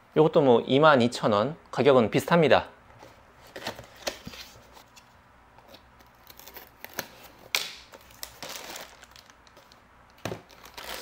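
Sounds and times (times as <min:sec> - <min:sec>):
plastic bag crinkling: 0:08.0 - 0:09.8, 0:10.5 - 0:11.0.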